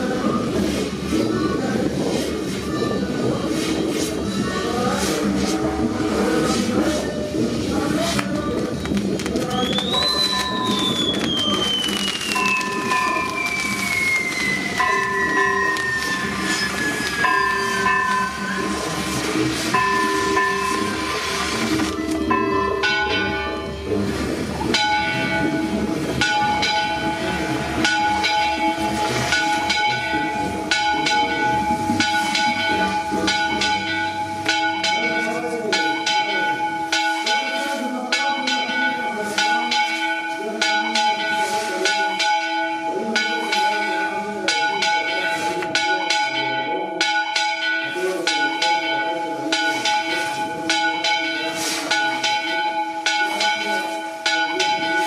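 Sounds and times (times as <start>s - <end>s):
church bells ringing: 12.4s - 13.8s, 14.6s - 55.0s.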